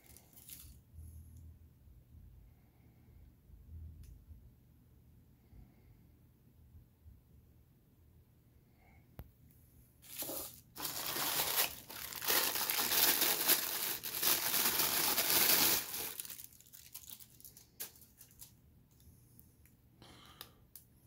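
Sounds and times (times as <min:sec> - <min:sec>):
plastic bag crinkling: 0:00.0 - 0:00.8, 0:10.0 - 0:18.6.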